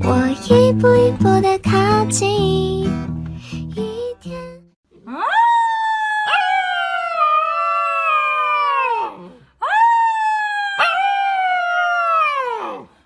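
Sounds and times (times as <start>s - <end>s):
puppy howling: 5.0s - 12.9s.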